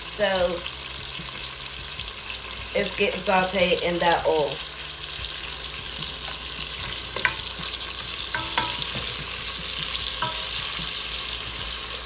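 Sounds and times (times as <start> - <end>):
sausage sizzling in oil: 0.0 - 12.0
spatula clinking on pot: 6.8 - 7.5, 8.2 - 9.3, 10.2 - 11.0.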